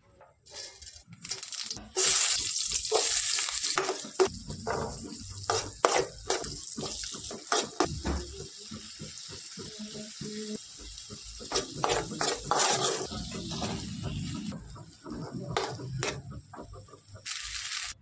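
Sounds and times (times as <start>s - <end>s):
spatula scraping a pan: 0.4s - 1.1s, 2.9s - 7.9s, 10.9s - 17.6s
potatoes sizzling in hot oil: 1.2s - 4.3s, 17.3s - 18.0s.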